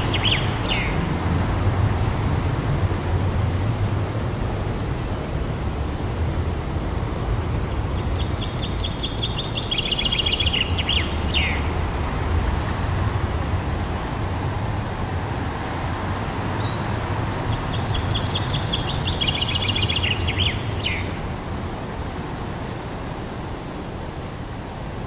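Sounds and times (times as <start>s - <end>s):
songbird trilling: 0.0s - 1.0s, 8.1s - 11.7s, 14.6s - 21.2s
wind rumbling on microphone: 0.0s - 25.0s.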